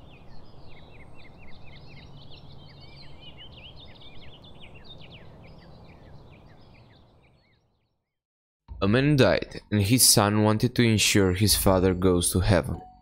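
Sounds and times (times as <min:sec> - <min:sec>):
small birds chirping: 0:00.0 - 0:08.2.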